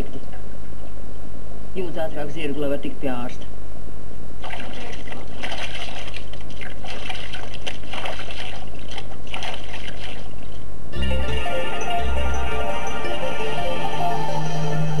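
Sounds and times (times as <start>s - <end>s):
water splashing in a basin: 4.4s - 10.6s
music: 11.0s - 15.0s.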